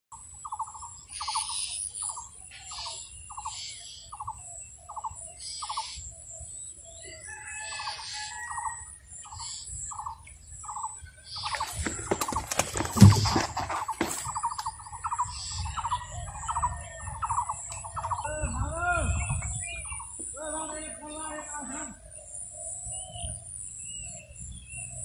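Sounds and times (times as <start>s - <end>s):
bird chirps: 0.4s - 25.0s
bird rattling call: 11.4s - 16.0s.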